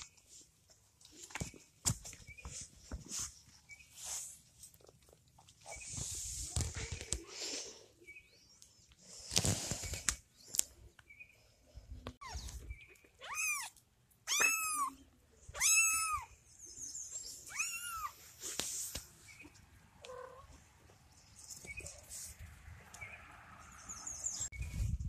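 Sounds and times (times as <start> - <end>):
rustling handling noise: 0.0 - 7.6
kitten meowing: 13.2 - 16.3, 17.5 - 18.2.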